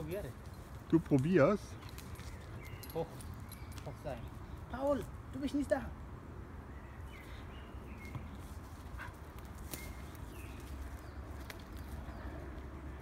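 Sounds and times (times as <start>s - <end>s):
shoes on bark: 7.9s - 12.8s
twigs snapping: 9.3s - 12.0s.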